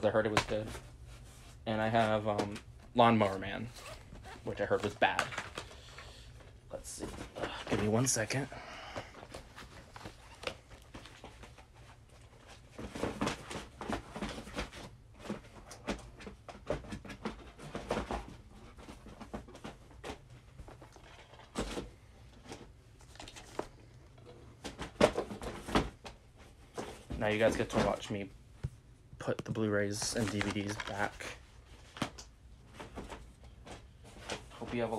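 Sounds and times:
plastic cases clacking and sliding: 0:03.9 - 0:08.5, 0:29.2 - 0:34.9.

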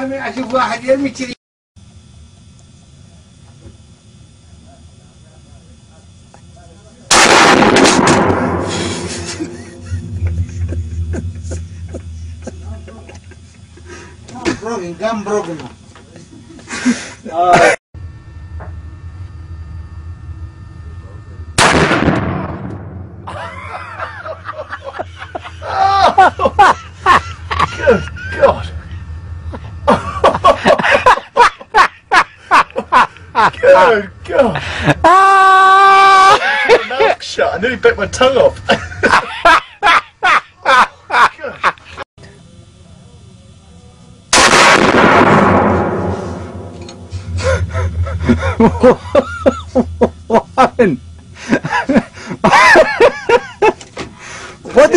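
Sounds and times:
voices: 0:02.5 - 0:07.2, 0:08.9 - 0:17.8, 0:23.3 - 0:44.3
loud gunshot: 0:07.1 - 0:09.3, 0:21.6 - 0:23.3, 0:44.3 - 0:46.8
person laughing: 0:08.7 - 0:14.6, 0:16.2 - 0:17.8, 0:23.3 - 0:37.2, 0:38.6 - 0:42.0, 0:47.2 - 0:53.8.

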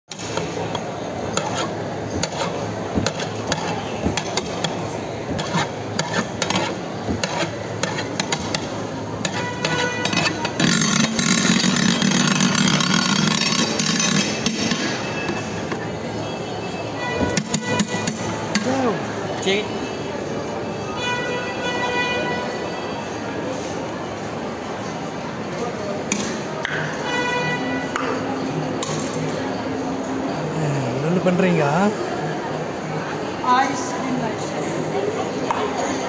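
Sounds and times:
metal paddle clanking and scraping: 0:00.1 - 0:15.5.

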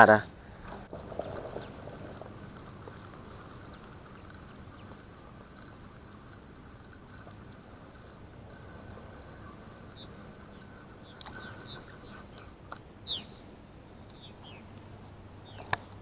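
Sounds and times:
fishing reel cranking: 0:00.8 - 0:12.8.

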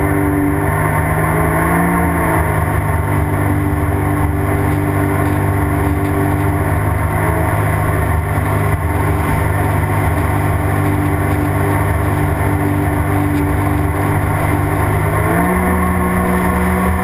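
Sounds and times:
jet ski engine running: 0:00.0 - 0:17.0
water rushing: 0:00.0 - 0:17.0.

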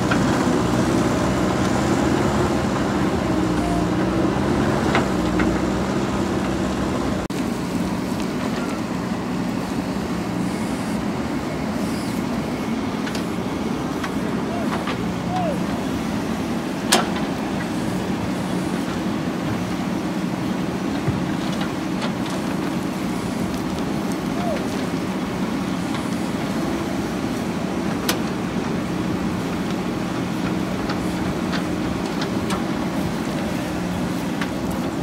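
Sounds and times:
backhoe arm digging soil: 0:00.0 - 0:35.0
diesel engine running under load: 0:00.0 - 0:35.0.

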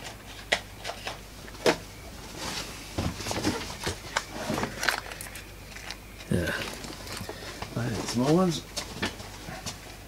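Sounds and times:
small parts clicking and knocking: 0:04.6 - 0:07.3.

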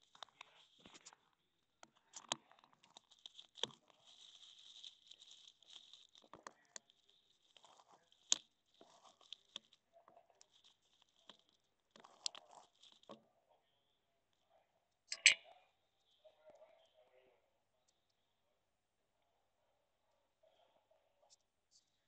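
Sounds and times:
rustling on dry wood chips: 0:02.1 - 0:13.2.

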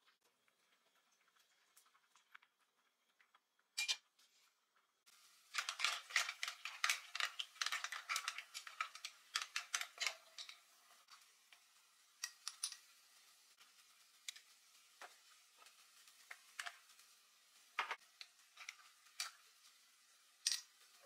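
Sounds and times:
clam shells clattering in a pan: 0:05.2 - 0:13.2, 0:14.2 - 0:21.0.

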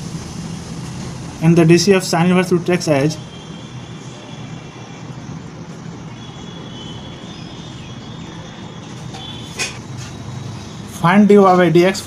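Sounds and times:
steady background hum and hiss: 0:00.0 - 0:12.0.

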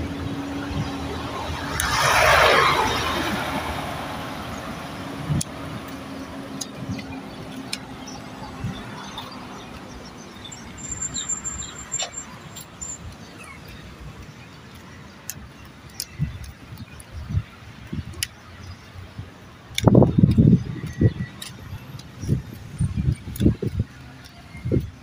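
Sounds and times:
vehicle rushing past: 0:00.0 - 0:09.5
distant traffic: 0:00.0 - 0:25.0
engine hum: 0:00.0 - 0:25.0.

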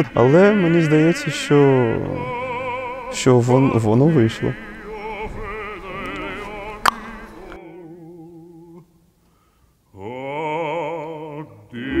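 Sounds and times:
operatic singing with vibrato: 0:00.0 - 0:09.1, 0:09.9 - 0:12.0.

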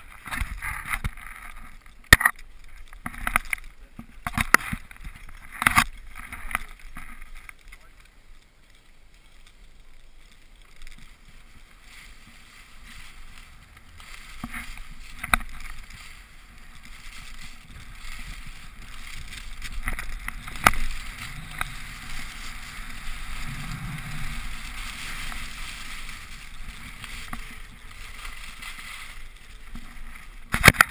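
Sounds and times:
skis hissing on snow: 0:11.0 - 0:30.5.

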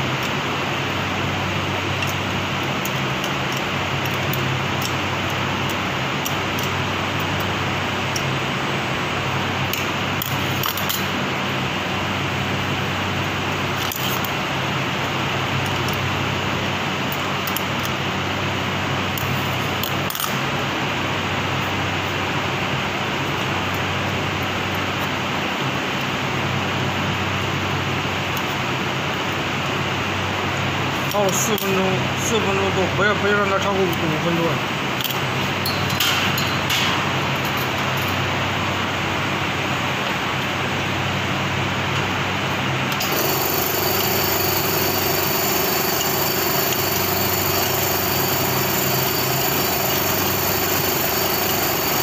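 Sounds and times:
workshop machinery humming: 0:00.0 - 0:52.0.

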